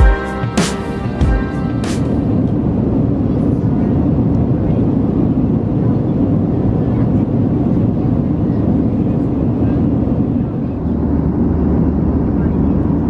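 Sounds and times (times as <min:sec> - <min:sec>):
airliner cabin rumble: 0:00.1 - 0:13.0.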